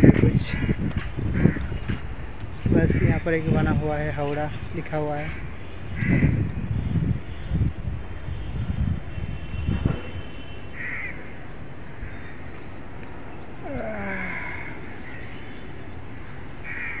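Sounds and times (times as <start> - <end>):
open-air background: 0.0 - 17.0
crows cawing: 1.4 - 2.0, 10.8 - 11.3, 16.6 - 17.0.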